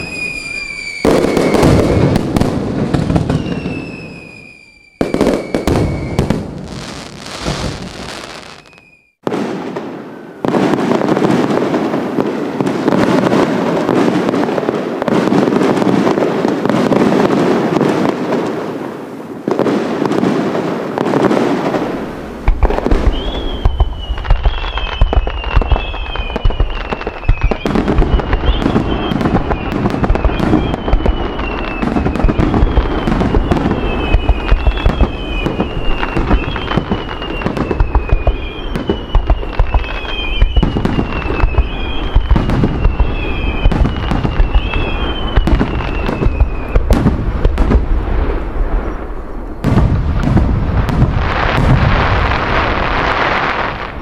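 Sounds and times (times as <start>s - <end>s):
falling firework whistle: 0.0s - 14.1s, 21.2s - 47.2s
fireworks bangs and crackles: 0.0s - 54.0s.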